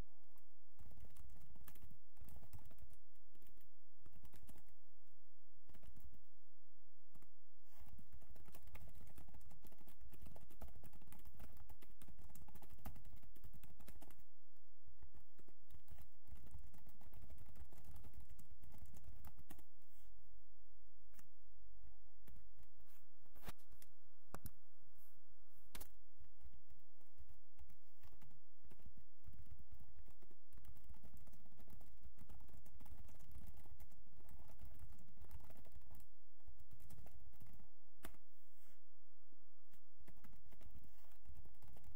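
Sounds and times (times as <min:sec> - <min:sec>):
computer keyboard typing: 0:00.8 - 0:04.8, 0:07.1 - 0:14.2, 0:15.1 - 0:19.7, 0:27.1 - 0:38.2, 0:39.7 - 0:41.9.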